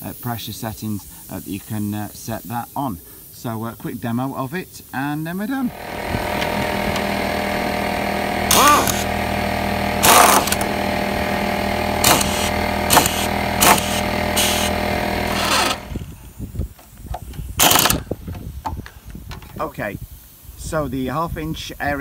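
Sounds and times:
pneumatic impact wrench hammering: 0:05.7 - 0:16.2, 0:16.8 - 0:18.2.

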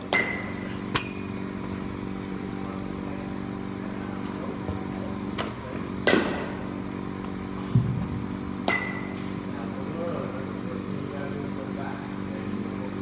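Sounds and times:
bat striking ball ping: 0:00.0 - 0:01.3, 0:05.4 - 0:06.6, 0:08.6 - 0:09.3
steady motor hum: 0:00.0 - 0:13.0.

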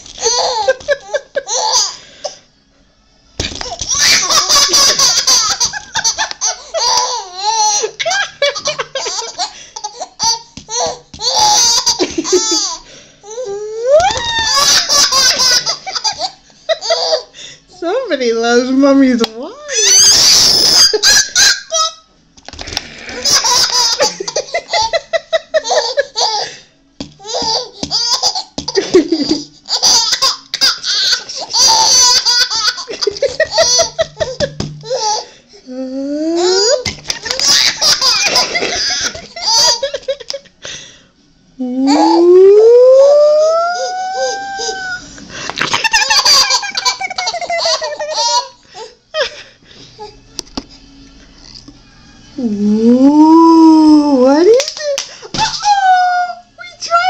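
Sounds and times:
baby laughing: 0:00.2 - 0:02.0, 0:03.6 - 0:17.3, 0:19.8 - 0:22.1, 0:23.0 - 0:26.5, 0:27.2 - 0:35.3, 0:36.4 - 0:40.4, 0:45.6 - 0:48.9
baby squealing: 0:13.9 - 0:15.2, 0:19.7 - 0:22.0.

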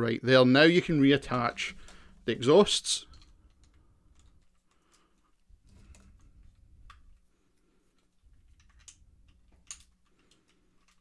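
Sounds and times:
plastic toy parts clicking: 0:07.9 - 0:11.0.

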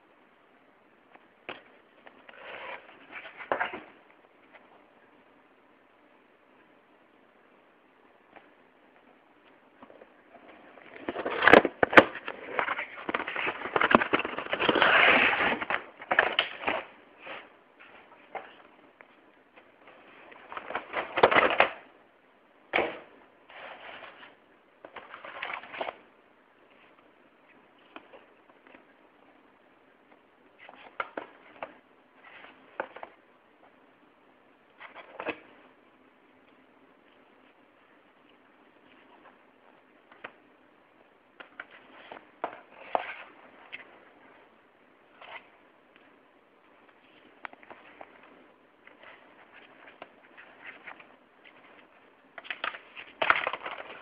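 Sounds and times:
packaging crackling and rustling: 0:10.8 - 0:17.5, 0:48.8 - 0:54.0.

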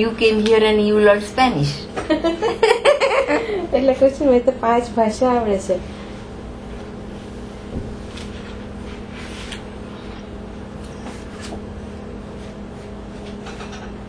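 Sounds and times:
low room hum: 0:00.0 - 0:14.0
soft page rustles: 0:08.1 - 0:09.7.

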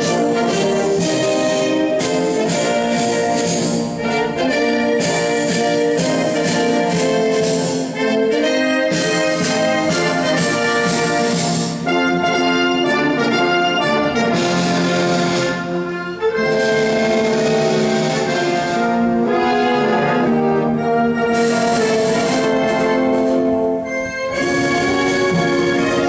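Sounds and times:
brass band playing slow tune: 0:00.0 - 0:26.0.

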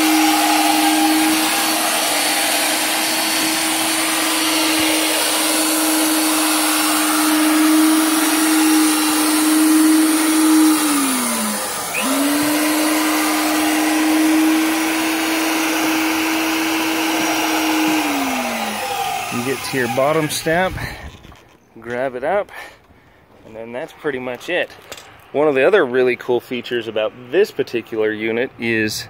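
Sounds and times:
drill motor whine: 0:00.0 - 0:21.4.

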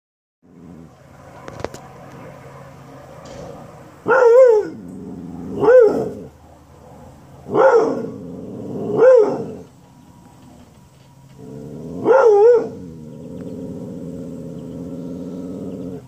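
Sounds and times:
dog barking: 0:04.0 - 0:04.8, 0:05.5 - 0:06.3, 0:07.5 - 0:08.1, 0:08.9 - 0:09.5, 0:12.0 - 0:12.8.

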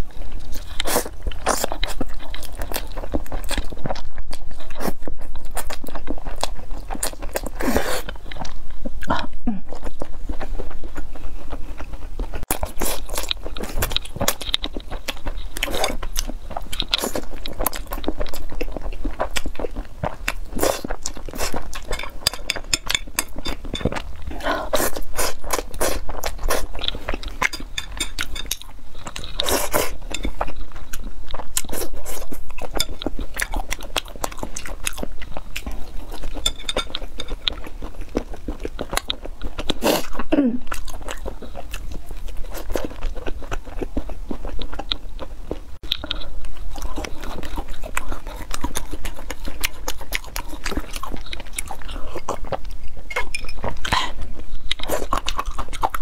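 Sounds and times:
person chewing spaghetti: 0:00.0 - 0:56.0.

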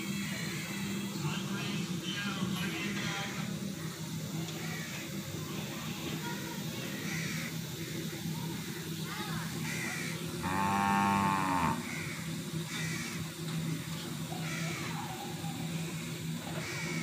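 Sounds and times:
crows cawing: 0:04.6 - 0:05.0, 0:07.0 - 0:07.5, 0:09.6 - 0:13.2, 0:14.4 - 0:15.0, 0:16.6 - 0:17.0
cow mooing: 0:10.4 - 0:12.1.

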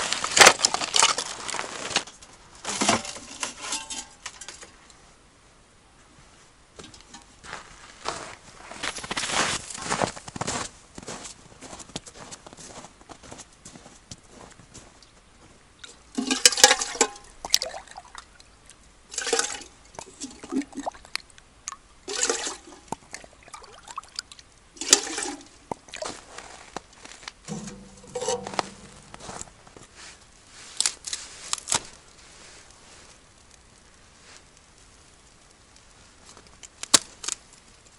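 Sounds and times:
water splashing and gushing: 0:22.1 - 0:26.3.

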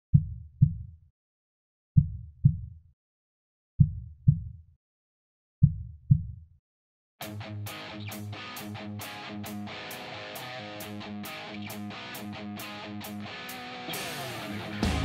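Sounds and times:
heartbeat thumps: 0:00.1 - 0:00.9, 0:02.0 - 0:02.7, 0:03.8 - 0:04.6, 0:05.6 - 0:06.4.

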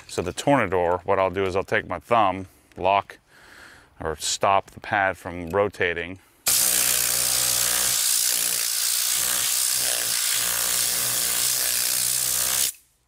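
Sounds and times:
compressed air blasting hiss: 0:06.5 - 0:12.8.

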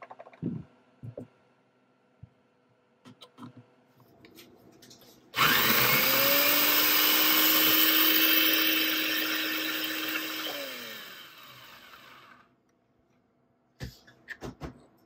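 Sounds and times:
coffee grinder motor whirring: 0:05.4 - 0:12.4.

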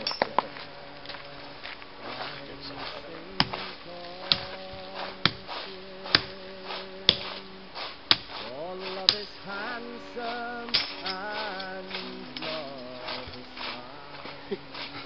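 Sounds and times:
man humming: 0:00.0 - 0:15.0
tent stake being hammered: 0:02.7 - 0:15.0.

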